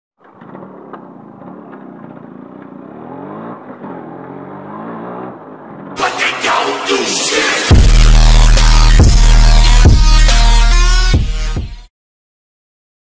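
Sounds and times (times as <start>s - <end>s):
loud rushing noise effect: 6.0s - 10.0s.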